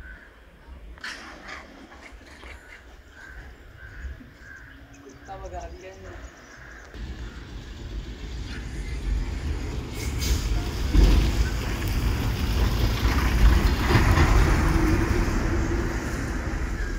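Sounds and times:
bus passing by: 7.0s - 16.9s.

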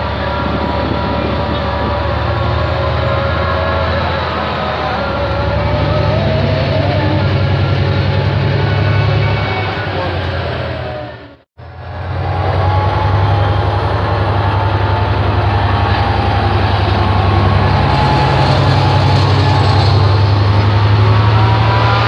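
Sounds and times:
diesel locomotive engine droning: 0.0s - 22.0s.

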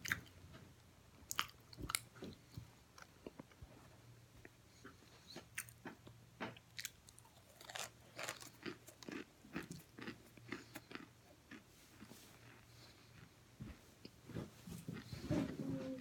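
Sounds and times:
crunchy food chewing: 4.7s - 13.3s.

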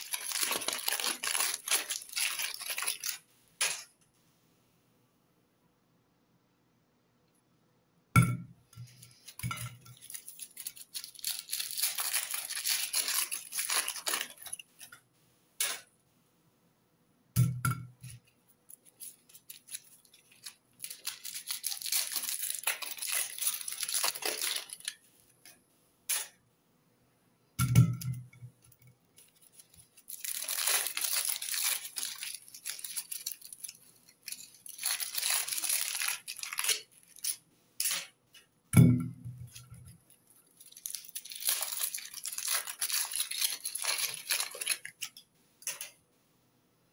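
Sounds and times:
aluminium foil crinkling and tearing: 0.0s - 3.9s, 8.8s - 15.0s, 18.2s - 25.5s, 28.6s - 38.2s, 39.4s - 46.0s.

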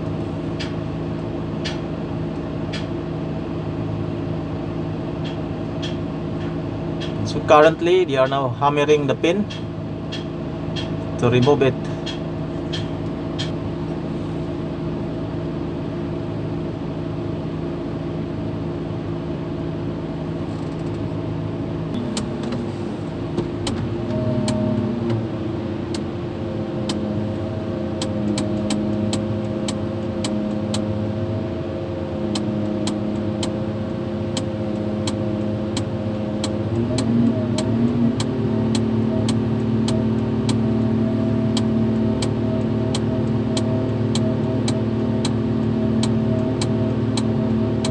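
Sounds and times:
crane engine running: 0.0s - 47.9s.

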